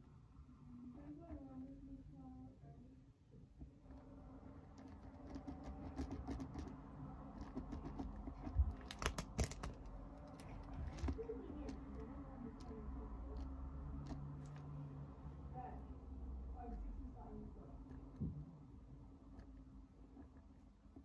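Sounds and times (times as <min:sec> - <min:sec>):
hands handling small objects: 0:07.3 - 0:12.8.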